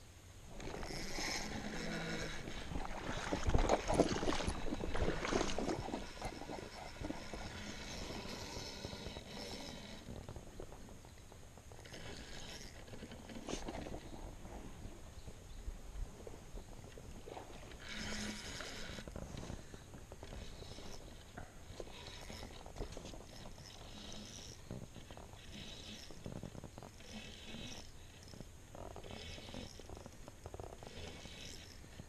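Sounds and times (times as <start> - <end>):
spinning reel being wound: 0.6 - 2.8, 23.3 - 24.6.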